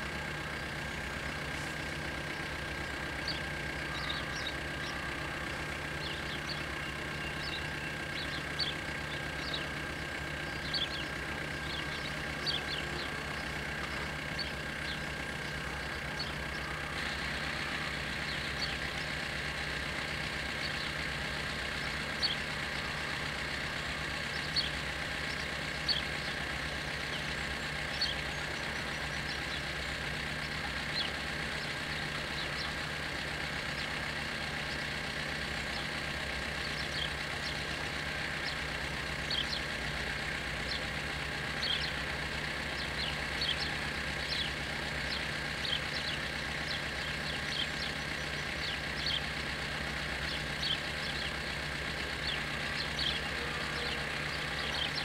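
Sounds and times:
bird chirps: 3.2s - 5.1s, 5.8s - 9.8s, 10.4s - 19.4s, 20.5s - 23.1s, 23.9s - 26.4s, 27.0s - 32.8s, 36.6s - 37.7s, 39.2s - 39.7s, 41.6s - 42.0s, 42.7s - 49.4s, 50.2s - 55.0s
level-crossing warning bells ringing: 52.4s - 55.0s.

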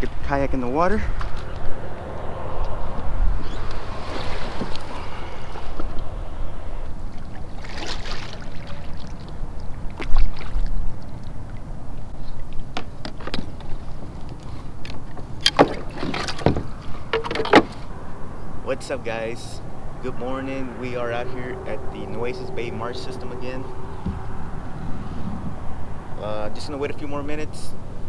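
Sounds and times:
water sloshing against hull: 3.5s - 18.2s
heavy thump: 24.0s - 24.3s.

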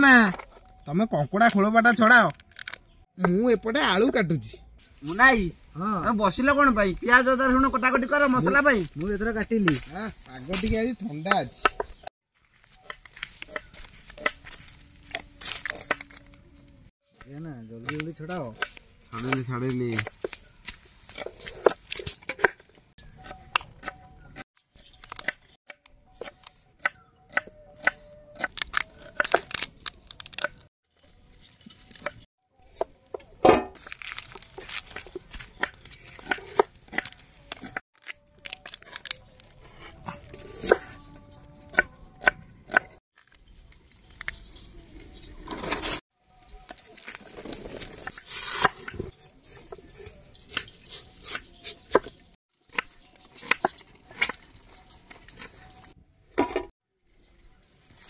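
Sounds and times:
crab shells cracking: 37.0s - 39.6s.

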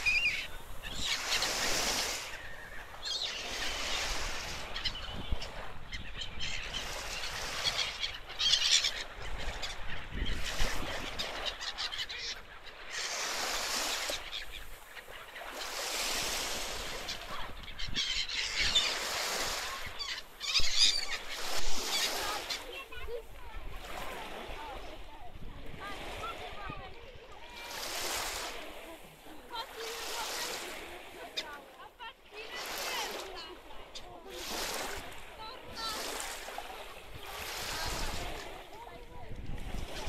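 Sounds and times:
gulls calling harshly: 0.0s - 25.1s, 27.4s - 38.7s
small waves washing onto shore: 0.0s - 40.0s.

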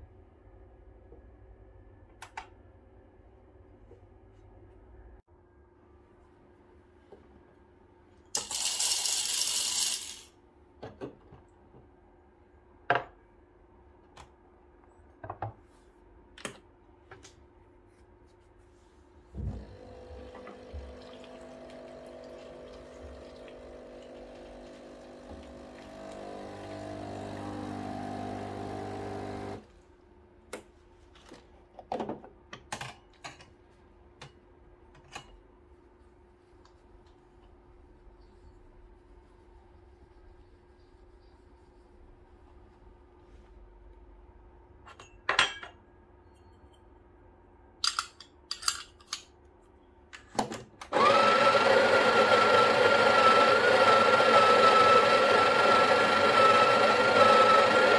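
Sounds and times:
espresso machine pump humming: 19.4s - 29.6s, 51.0s - 57.9s.

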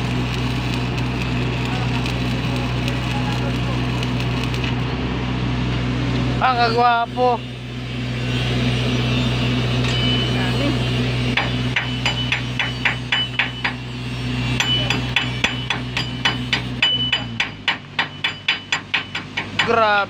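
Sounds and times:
welding machine engine hum: 0.0s - 20.0s
chipping hammer striking steel: 11.3s - 20.0s.

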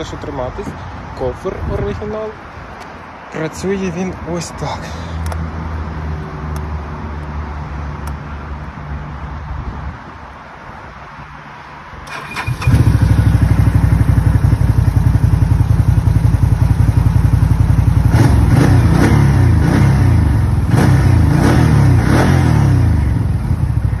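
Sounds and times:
engine cranking and starting: 12.1s - 13.4s
engine revving in blips: 18.1s - 23.1s.

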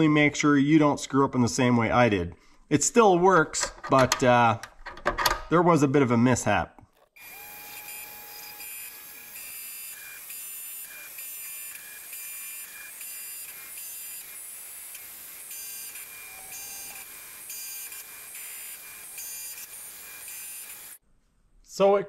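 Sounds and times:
lathe cutting steel whine: 7.2s - 21.0s.

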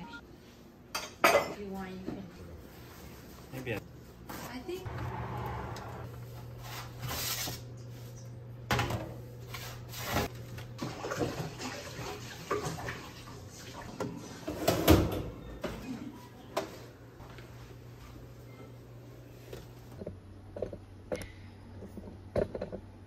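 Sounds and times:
kitchen knocks and clatter: 8.7s - 9.2s, 14.0s - 15.9s.

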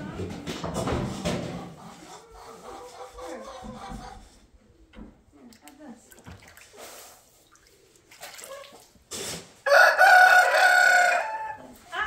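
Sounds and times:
rooster crowing: 9.6s - 11.6s.

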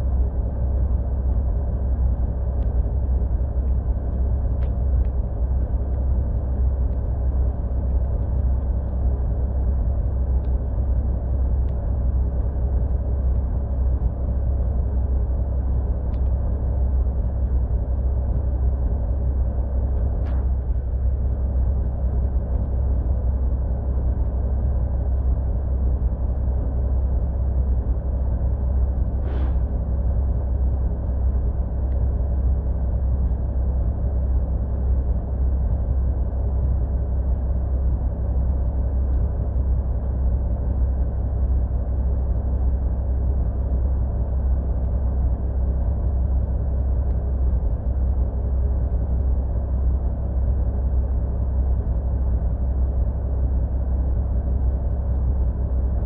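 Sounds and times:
brief hiss: 29.2s - 29.7s.

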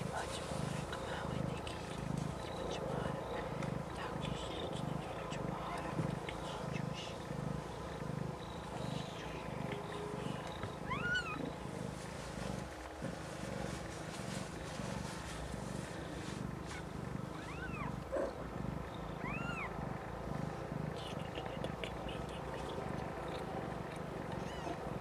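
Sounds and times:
cat purring: 0.0s - 25.0s
kitten mewing: 16.7s - 18.4s.

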